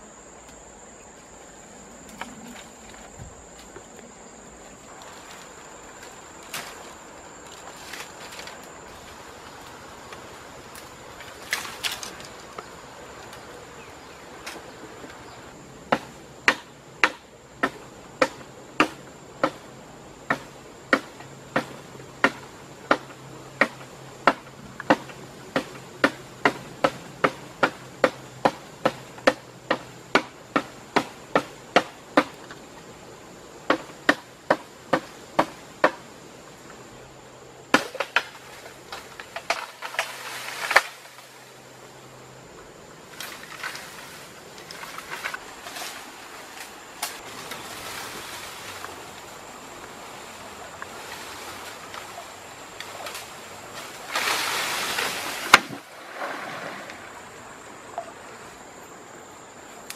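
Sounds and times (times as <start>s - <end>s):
chopping strikes on bamboo: 15.9s - 19.7s, 20.3s - 32.5s, 33.7s - 36.0s, 37.7s - 41.0s, 55.4s - 55.8s.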